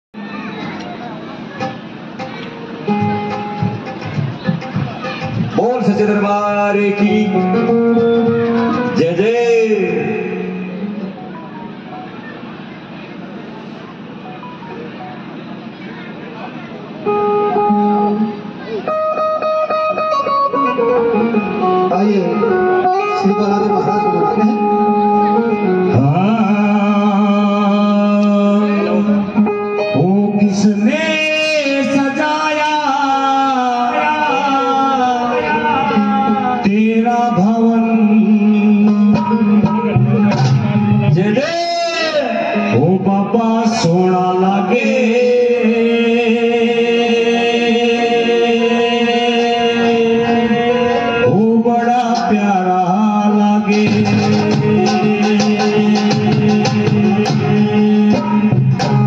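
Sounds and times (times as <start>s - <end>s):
instrumental accompaniment: 0.2s - 59.0s
devotional music backing: 0.8s - 12.5s, 16.8s - 59.0s
person singing devotional song: 42.8s - 58.7s.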